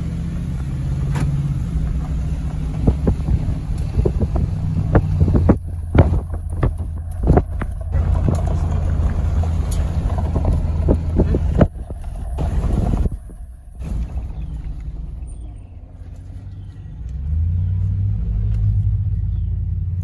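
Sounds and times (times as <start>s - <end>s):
vehicle engine and road noise: 0.0s - 20.0s
knocks and rattles: 1.1s - 15.3s
wind buffeting microphone: 1.6s - 16.7s.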